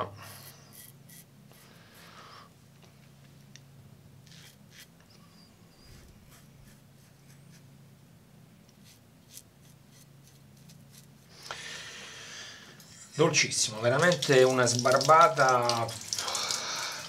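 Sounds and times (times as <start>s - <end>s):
faint steady hum: 0.0s - 17.0s
razor scraping stubble: 0.3s - 1.8s, 4.2s - 5.1s, 5.8s - 7.7s, 8.7s - 11.4s.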